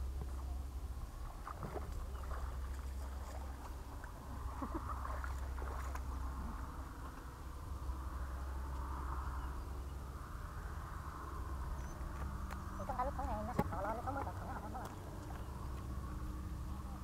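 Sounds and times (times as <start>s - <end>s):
fish splashing in water: 1.2s - 6.8s.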